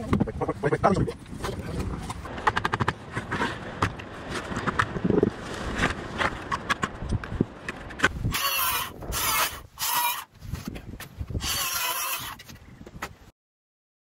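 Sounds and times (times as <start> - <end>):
circular saw cutting board: 8.3 - 10.3, 11.4 - 12.5.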